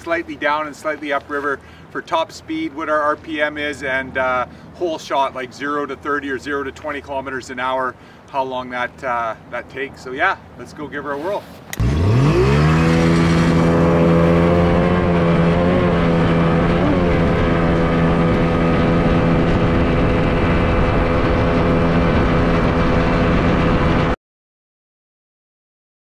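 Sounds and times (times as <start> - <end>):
outboard engine running hard: 11.8 - 24.2.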